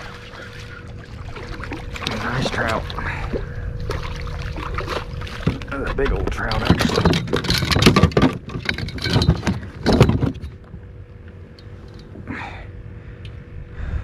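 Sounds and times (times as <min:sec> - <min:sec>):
fish flopping on plastic hull: 0:00.0 - 0:10.7.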